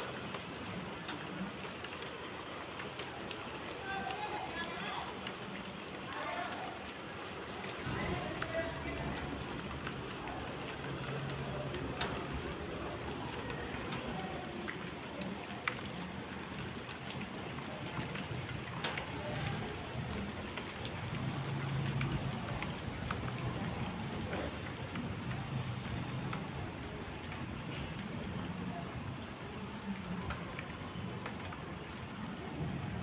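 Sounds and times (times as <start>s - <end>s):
steady rain falling: 0.0s - 33.0s.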